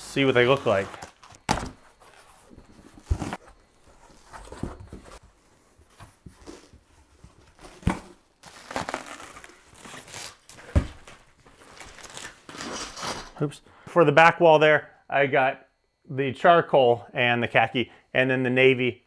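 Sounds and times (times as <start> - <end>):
tape tearing and packaging crinkling: 0.2 - 3.4, 6.1 - 13.4.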